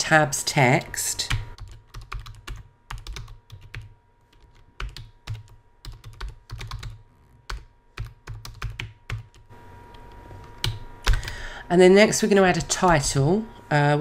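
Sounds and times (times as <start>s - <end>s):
computer keyboard typing: 1.3s - 11.3s.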